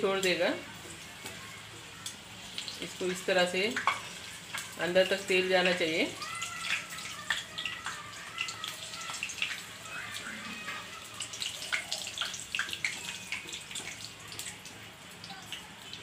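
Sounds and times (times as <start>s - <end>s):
oil sizzling and popping: 0.0s - 16.0s.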